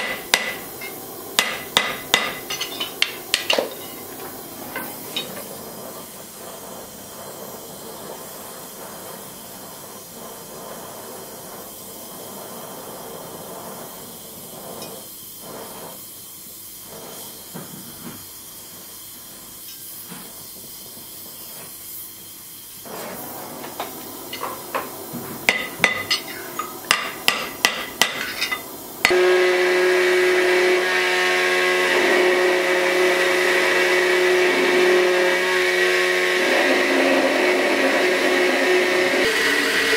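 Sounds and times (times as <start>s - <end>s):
gas torch flame hissing: 0.0s - 39.9s
belt grinder humming: 28.2s - 39.9s.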